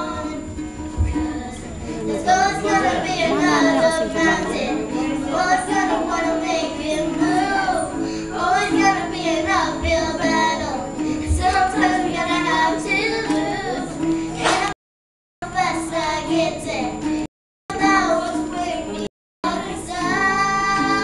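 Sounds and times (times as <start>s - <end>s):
girl singing a slow ballad: 0.0s - 14.8s, 15.4s - 21.0s
strummed acoustic guitar: 0.0s - 14.8s.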